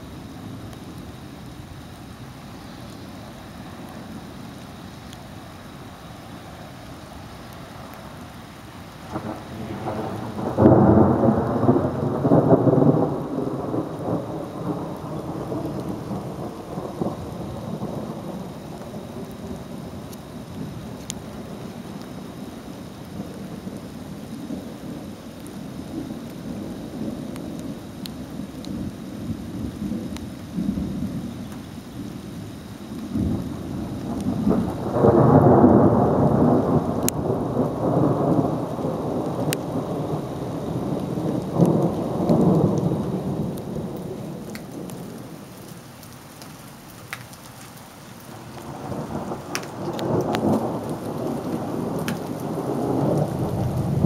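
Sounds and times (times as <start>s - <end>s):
steady rain: 0.0s - 54.0s
raindrop ticks: 2.8s - 3.1s, 3.8s - 5.3s, 8.9s - 23.6s, 25.2s - 30.5s, 31.4s - 31.8s, 32.4s - 54.0s
thunder rumbling: 9.0s - 46.1s, 48.2s - 54.0s.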